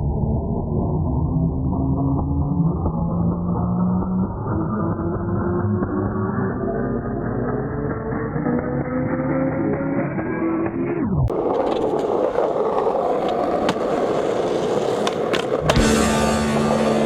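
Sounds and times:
skateboard clicks: 11.3s - 16.0s
skateboard wheels rolling on pavement: 11.3s - 17.0s.

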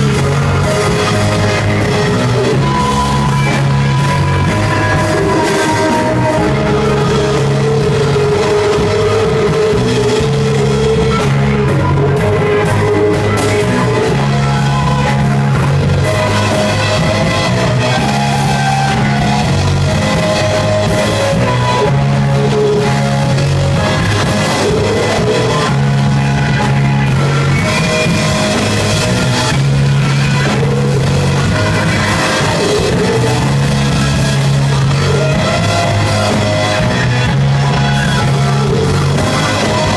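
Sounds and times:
rock band playing live: 0.0s - 39.9s.

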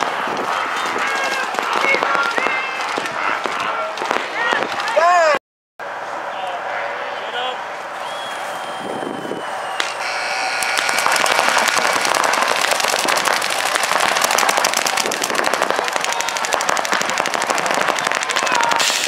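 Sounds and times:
paintball markers firing: 9.8s - 19.0s.

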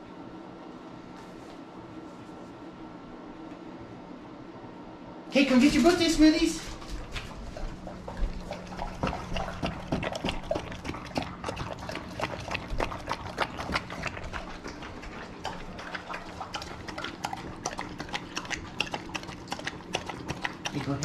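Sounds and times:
dogs lapping from metal bowls: 5.4s - 21.0s.

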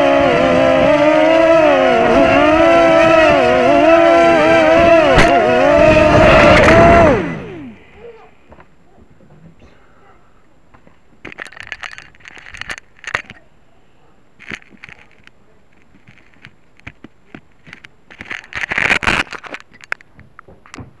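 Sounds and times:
camera handling noise: 11.2s - 13.4s, 14.4s - 20.1s.

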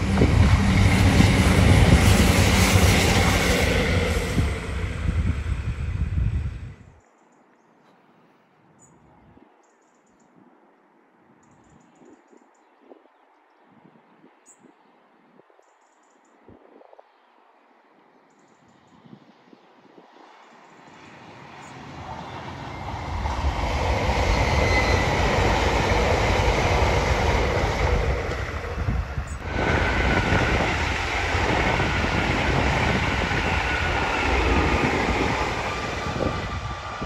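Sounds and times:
high-speed trains passing: 0.0s - 7.0s, 18.8s - 37.0s.

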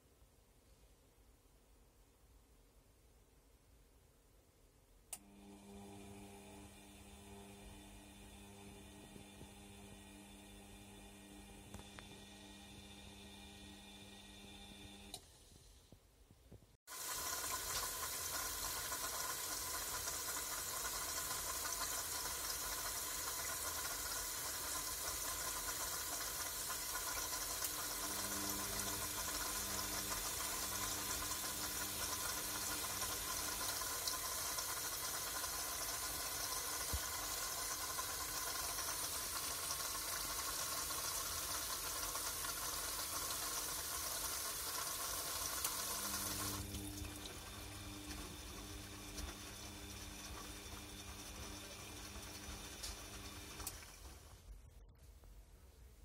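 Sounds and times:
washing machine taking in water: 16.9s - 54.4s.

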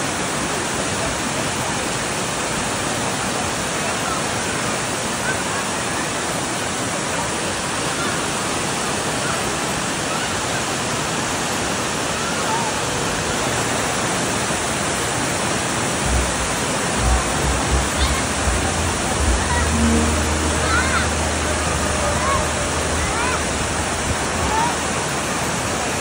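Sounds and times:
waterfall roaring: 0.0s - 26.0s
low rumbling thumps: 15.9s - 25.2s.

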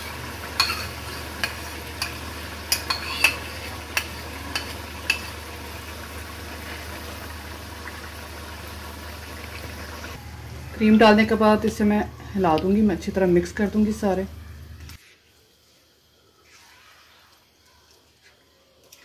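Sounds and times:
gravy sizzling in a wok: 0.0s - 19.0s.

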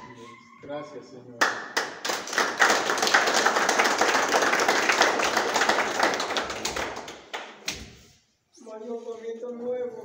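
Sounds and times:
group applauding: 1.4s - 7.9s.

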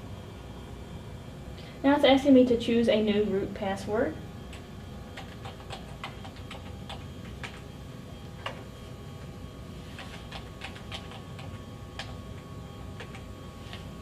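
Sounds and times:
steady low hum: 0.0s - 14.0s
computer keyboard typing: 4.5s - 7.6s, 9.9s - 12.2s, 12.8s - 13.3s.

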